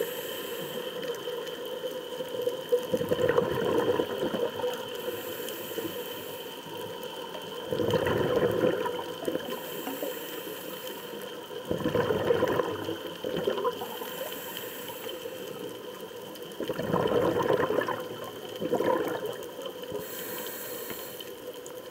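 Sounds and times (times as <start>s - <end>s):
regulator hissing on inhale: 0.0s - 1.7s, 4.8s - 7.5s, 9.4s - 11.7s, 13.7s - 16.0s, 19.8s - 21.8s
exhaled air bubbling: 2.6s - 6.3s, 7.6s - 21.9s.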